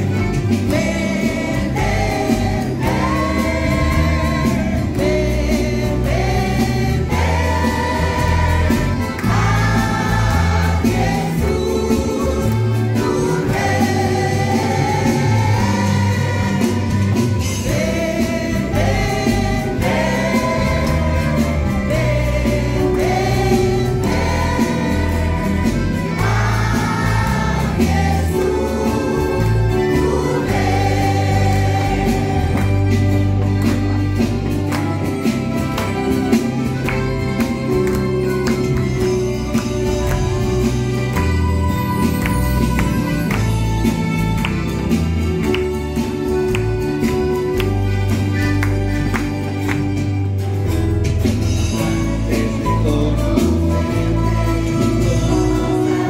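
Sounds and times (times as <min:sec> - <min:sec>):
choir singing: 0:00.0 - 0:34.2, 0:51.7 - 0:56.0
band with bass and beat: 0:00.0 - 0:56.0.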